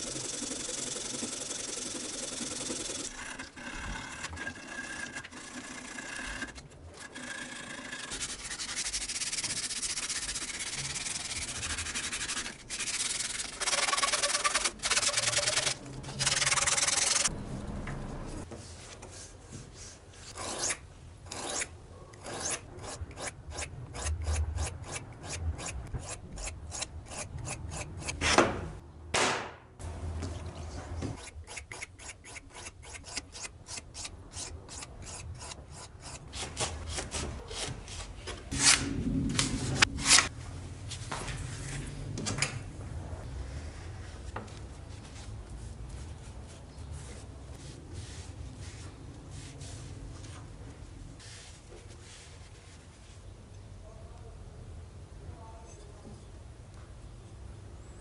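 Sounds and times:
sandpaper rubbing wood: 8.1 - 17.3.

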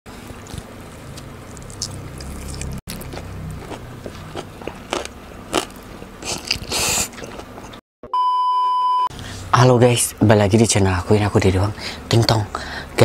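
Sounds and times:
close chewing and mouth smacks: 0.2 - 7.8
slurping: 1.7 - 7.6.

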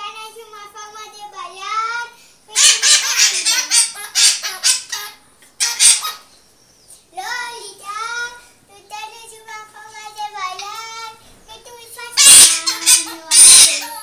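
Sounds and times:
parrot singing raspy bursts: 2.5 - 6.3, 12.1 - 14.0.

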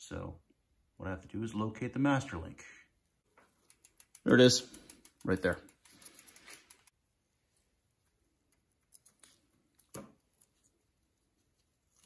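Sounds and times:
faint metallic bicycle chain clicks: 3.6 - 6.9.

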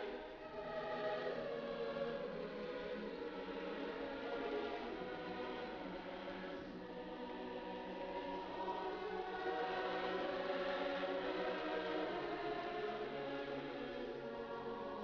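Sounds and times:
choir singing held chords: 0.0 - 15.0.

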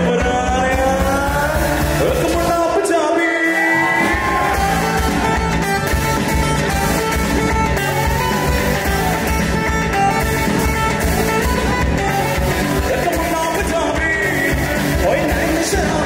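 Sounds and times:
bass and drums beat: 0.0 - 2.8, 3.6 - 16.0
person singing: 0.0 - 5.5, 12.6 - 16.0
guitar: 0.0 - 16.0.

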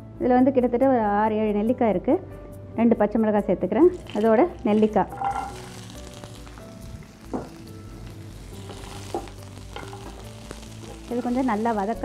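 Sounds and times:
food sizzling in hot oil: 3.8 - 12.0
wooden spatula knocking on pan: 7.3 - 7.6.

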